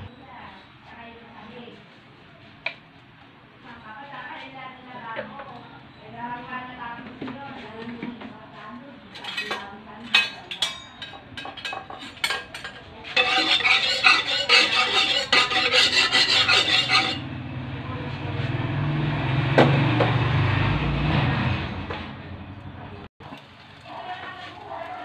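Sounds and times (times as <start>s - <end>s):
metal utensil scraping a wok: 10.2s - 17.3s.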